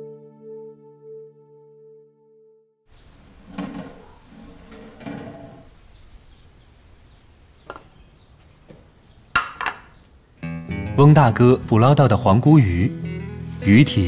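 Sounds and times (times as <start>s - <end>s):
background music: 0.0s - 2.7s, 10.4s - 14.0s.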